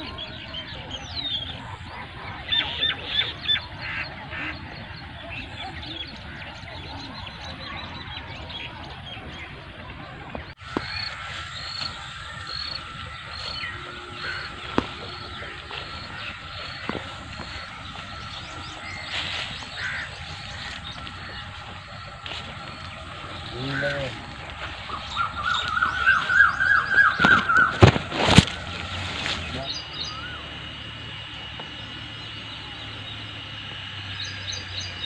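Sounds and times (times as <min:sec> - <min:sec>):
birds calling: 0:00.0 - 0:35.0
steady high tone: 0:10.6 - 0:35.0.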